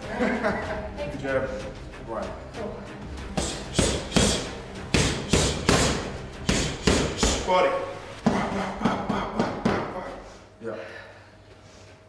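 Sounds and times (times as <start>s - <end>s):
boxing gloves hitting focus mitts: 3.4s - 7.5s.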